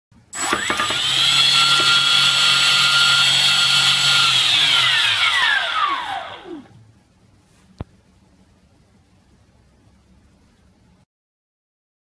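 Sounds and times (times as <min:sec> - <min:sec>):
drone motors whining: 0:00.4 - 0:06.8.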